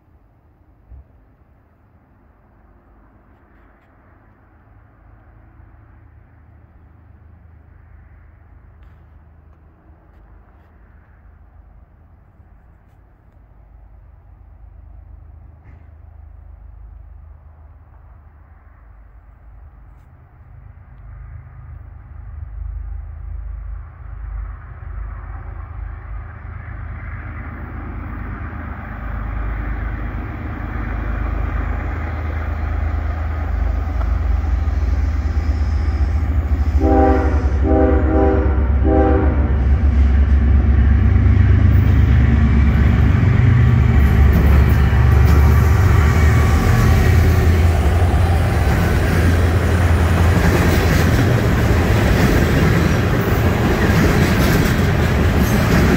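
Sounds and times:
diesel locomotive engine rumble: 0:00.0 - 0:55.9
train wheels on rails: 0:02.4 - 0:55.9
locomotive horn blasts: 0:36.6 - 0:39.8.

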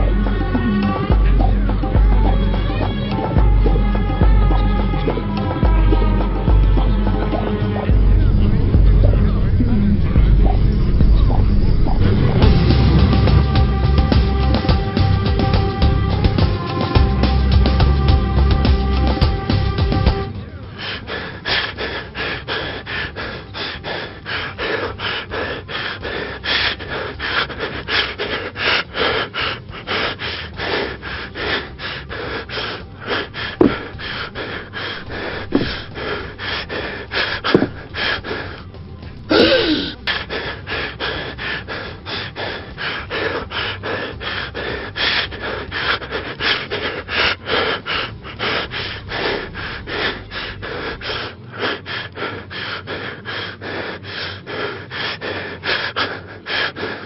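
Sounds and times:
person gasping rhythmically: 0:00.0 - 0:08.9, 0:11.9 - 0:57.0
person groaning: 0:39.3 - 0:40.0.

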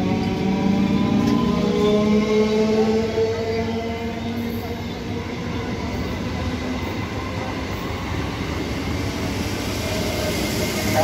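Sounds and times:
train wheels on rails: 0:00.0 - 0:11.0.

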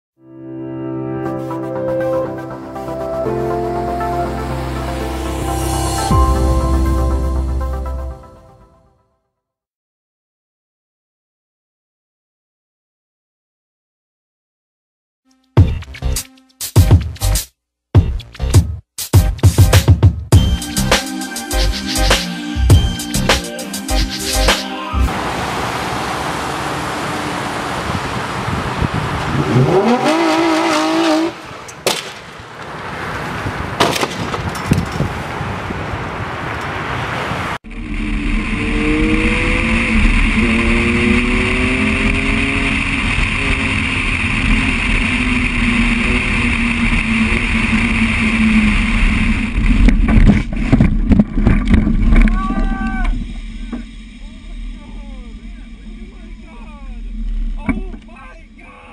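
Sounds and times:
road noise: 0:01.5 - 0:08.7, 0:20.6 - 0:58.9
car engine revving: 0:25.0 - 0:31.8, 0:36.7 - 0:49.8
wind noise: 0:26.9 - 0:30.0, 0:33.0 - 0:42.0
car crash thuds and crunches: 0:30.7 - 0:35.3.

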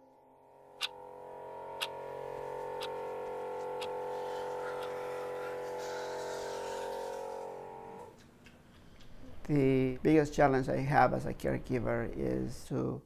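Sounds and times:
steady hum: 0:00.0 - 0:08.3.

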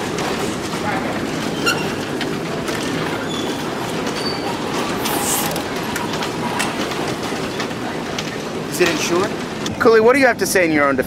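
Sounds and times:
short hiss: 0:05.0 - 0:05.6.

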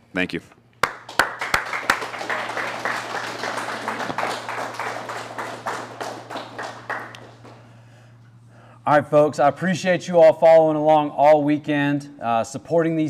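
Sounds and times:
steady low hum: 0:00.0 - 0:13.0
audience applauding: 0:00.8 - 0:07.8.

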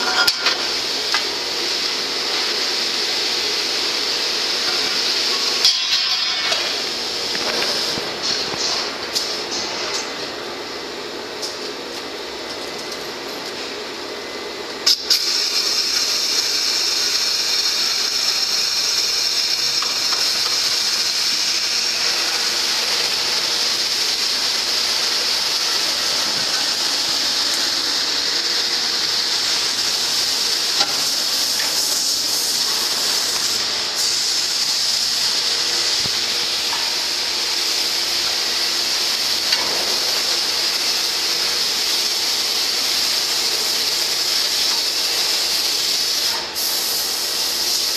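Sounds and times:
molten metal hissing: 0:14.9 - 0:47.9.

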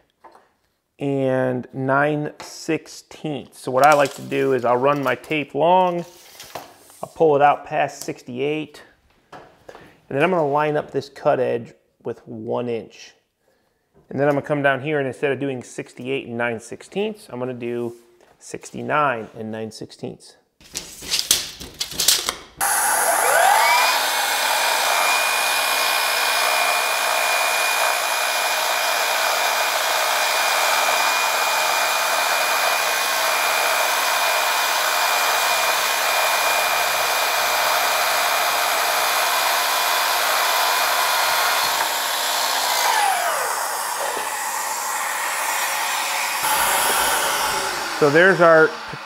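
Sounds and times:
miter saw motor whine: 0:22.6 - 0:49.0
vacuum airy hiss: 0:22.6 - 0:49.0.

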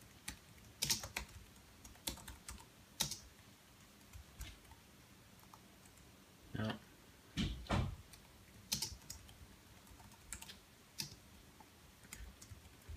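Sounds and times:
typing on computer keyboard: 0:00.0 - 0:03.3, 0:08.1 - 0:11.2, 0:12.0 - 0:12.9.

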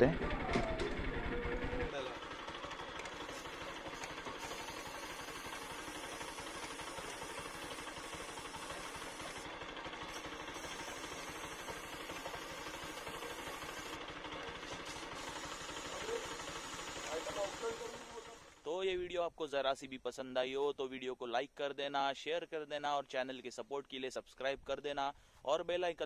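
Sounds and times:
motorcycle engine idling: 0:00.0 - 0:18.7.

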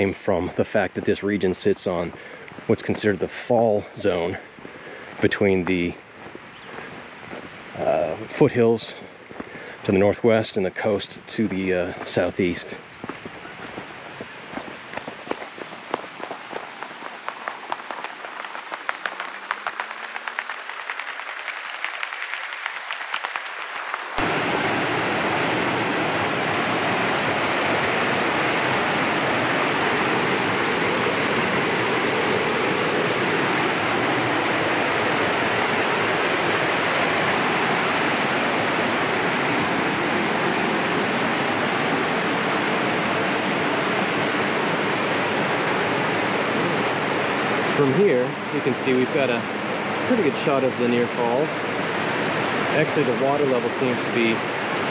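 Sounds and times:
faint crackly patter: 0:12.0 - 0:24.2
river rapids roaring: 0:13.5 - 0:54.9.

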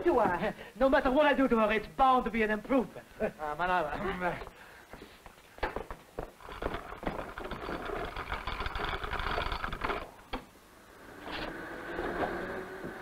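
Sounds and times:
rapid mechanical clattering: 0:06.4 - 0:10.1.

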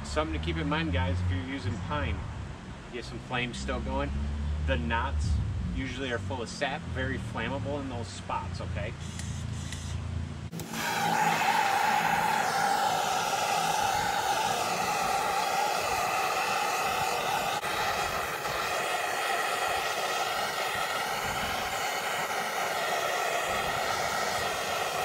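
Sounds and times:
propane torch flame hissing: 0:09.0 - 0:25.0.

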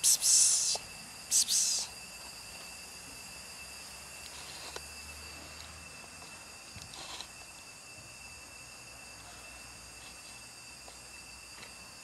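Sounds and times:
loud breathy hiss: 0:00.0 - 0:02.0
thin high whine: 0:00.0 - 0:12.0.

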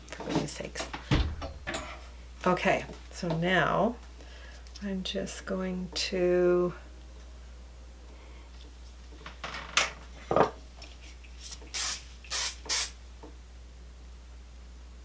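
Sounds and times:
hairspray can hissing: 0:11.4 - 0:13.0.

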